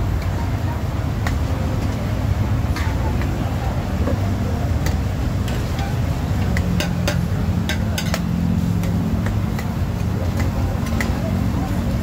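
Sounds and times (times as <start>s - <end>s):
metal ladles clanking on wok: 4.8s - 11.2s.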